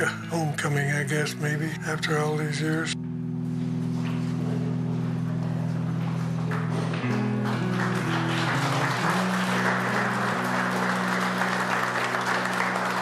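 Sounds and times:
background music of held low notes: 0.0 - 13.0
crowd applauding: 5.4 - 13.0.

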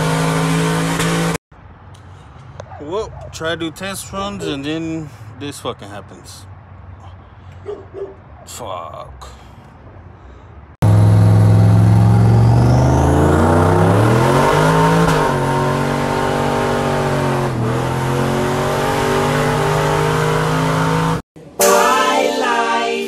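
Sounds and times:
pickup engine accelerating: 10.8 - 21.2.

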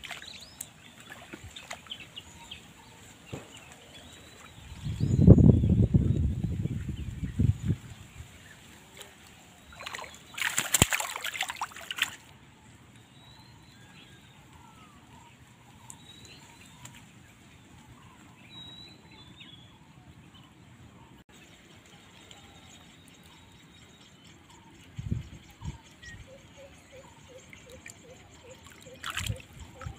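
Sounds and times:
water splashing: 0.0 - 2.4, 8.4 - 12.3, 27.6 - 29.9.

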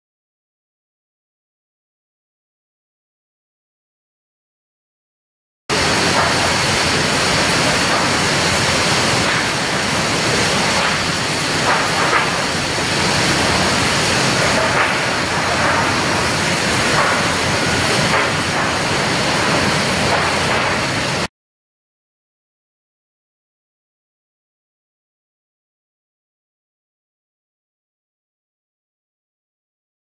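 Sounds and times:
mill machinery running: 5.7 - 21.3.

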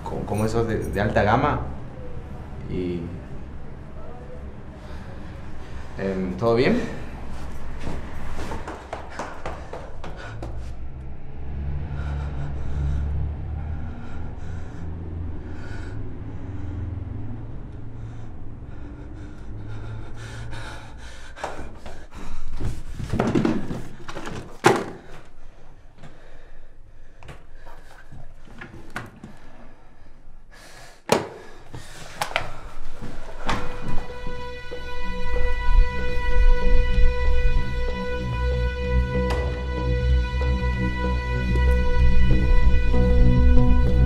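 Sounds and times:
low drone: 0.0 - 22.9, 32.4 - 44.0.

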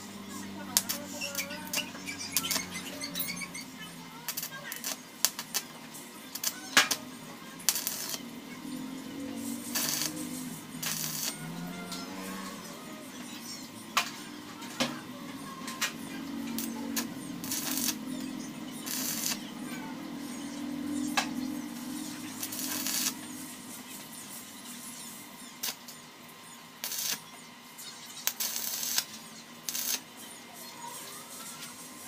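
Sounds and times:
welding arc bursts: 0.0 - 30.4
sharp clicks: 0.8 - 3.4.

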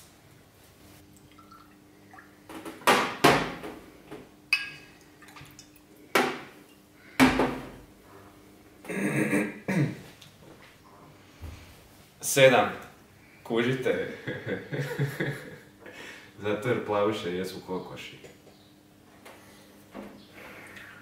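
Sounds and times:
liquid pouring: 1.0 - 2.4
glass bottle and glasses clinking: 4.5 - 4.9.

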